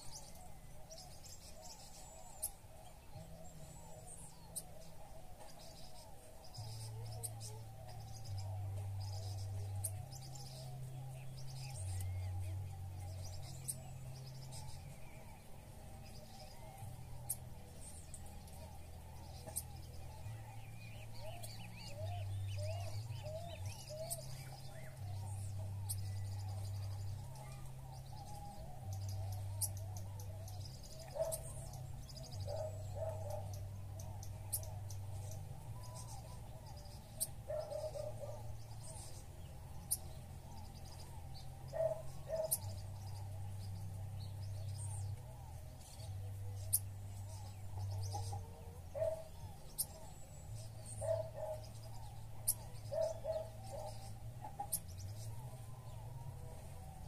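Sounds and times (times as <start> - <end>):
songbirds chipping: 0.0 - 57.0.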